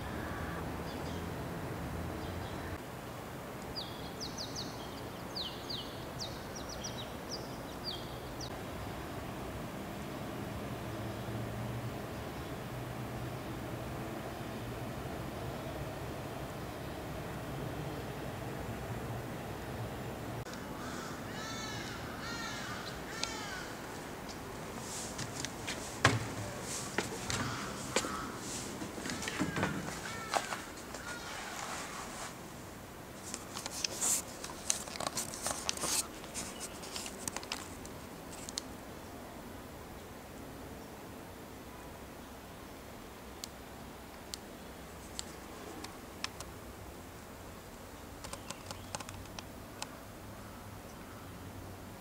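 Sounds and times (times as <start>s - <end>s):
steady background noise: 0.0s - 52.0s
crow cawing: 20.6s - 23.8s, 27.2s - 31.4s
sharp knocks: 25.2s - 31.2s.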